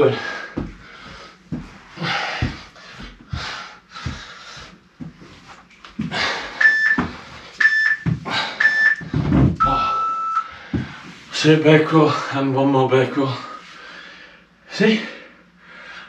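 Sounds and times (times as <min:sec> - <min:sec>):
person breathing hard: 0:00.0 - 0:05.0, 0:06.0 - 0:07.6, 0:08.2 - 0:11.2, 0:13.5 - 0:16.0
interval timer beeps: 0:06.6 - 0:09.0, 0:09.6 - 0:10.5.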